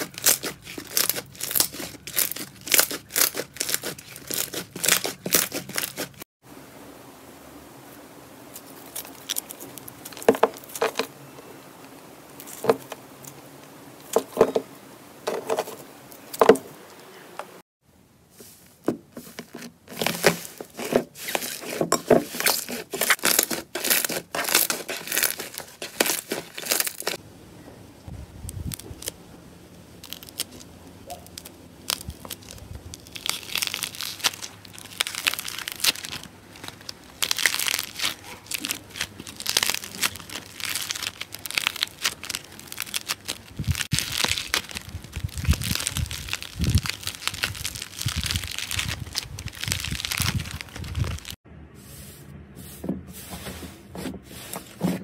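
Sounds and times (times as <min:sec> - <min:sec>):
slime squishing and popping: 0:22.4 - 0:27.2, 0:30.0 - 0:51.3.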